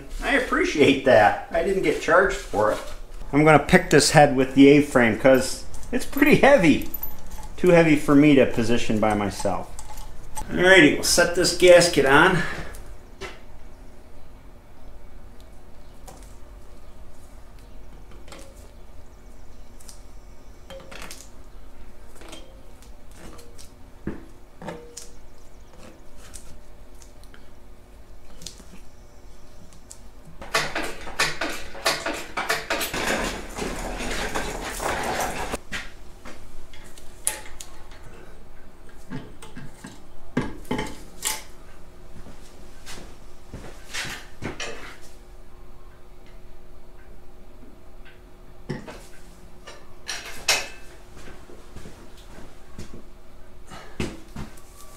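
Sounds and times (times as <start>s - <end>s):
metal chains clinking and clanking: 5.7s - 10.4s, 30.6s - 35.6s
metal studs clinking: 5.7s - 10.4s.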